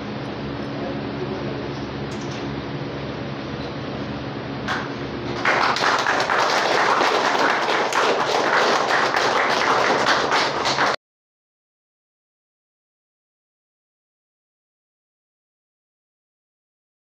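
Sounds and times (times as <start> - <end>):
small group applauding: 4.7 - 11.0.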